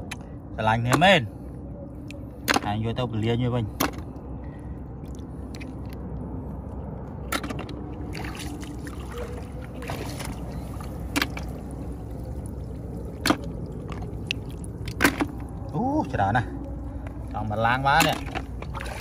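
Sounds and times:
steady low rumble: 0:00.0 - 0:19.0
hand sloshing through water: 0:08.0 - 0:15.7, 0:18.0 - 0:19.0.

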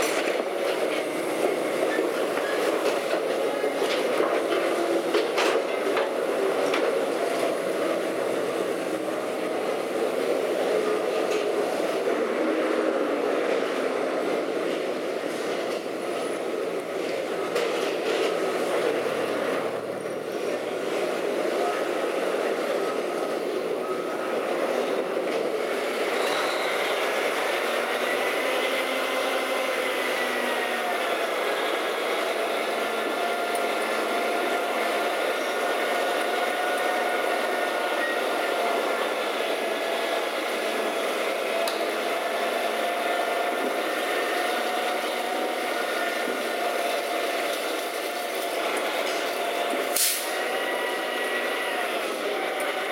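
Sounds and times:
hydraulic hoist whine: 0:25.4 - 0:52.9.

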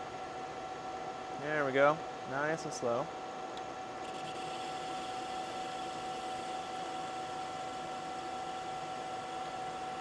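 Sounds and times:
lathe running with high whine: 0:03.1 - 0:10.0.

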